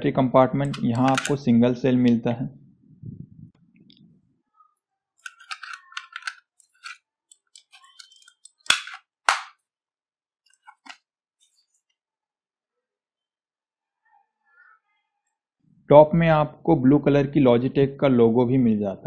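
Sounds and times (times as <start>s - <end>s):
plastic cover snapping shut: 8.6s - 9.6s.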